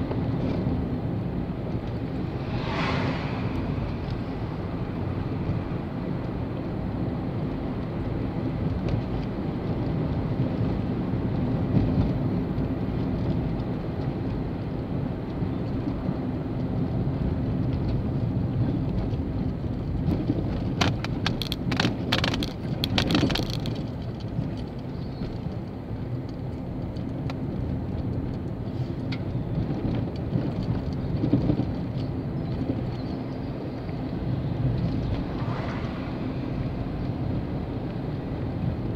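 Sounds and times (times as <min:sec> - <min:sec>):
car engine and tyres rumbling: 0:00.0 - 0:38.9
sharp clicks or rattles: 0:20.8 - 0:24.0.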